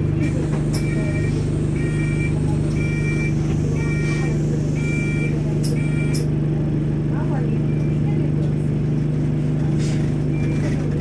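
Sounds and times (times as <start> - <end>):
bus diesel engine idling: 0.0 - 11.0
high electronic warning beeper: 0.8 - 6.2.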